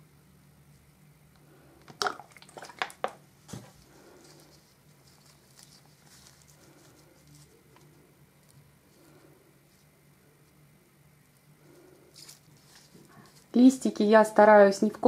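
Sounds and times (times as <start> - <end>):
plastic crackling and tapping: 1.8 - 3.7
soft rustling of soil: 3.4 - 14.3.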